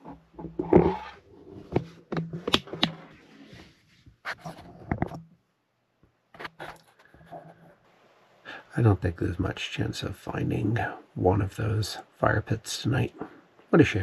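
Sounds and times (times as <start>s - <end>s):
camera handling knocks and clicks: 1.7s - 3.0s.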